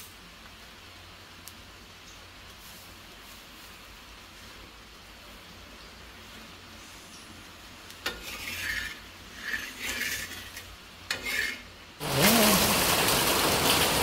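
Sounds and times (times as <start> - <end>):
loud steady hiss: 0.0 - 14.0
wooden spatula scraping iron griddle: 8.0 - 11.8.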